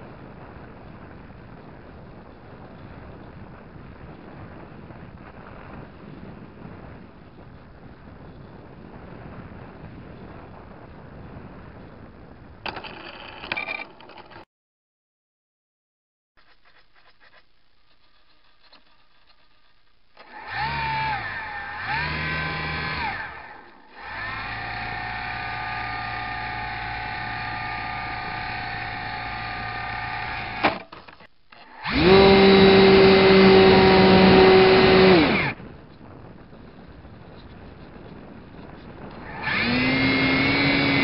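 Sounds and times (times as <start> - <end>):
model plane motor whining: 20.2 - 30.9, 31.5 - 35.6, 38.7 - 41.0.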